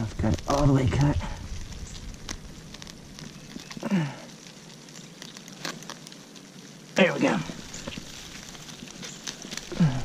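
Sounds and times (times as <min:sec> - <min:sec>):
crawfish shells clicking: 0:00.0 - 0:10.0
low grunt: 0:09.7 - 0:10.0.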